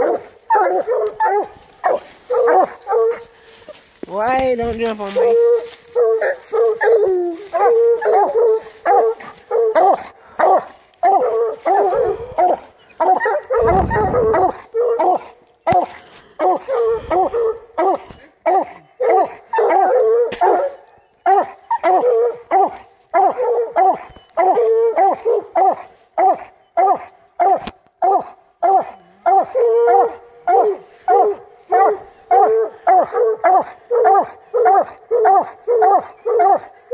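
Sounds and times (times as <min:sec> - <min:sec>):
dog barking: 0:00.0 - 0:03.3, 0:05.2 - 0:36.9
low rumble: 0:13.5 - 0:14.4.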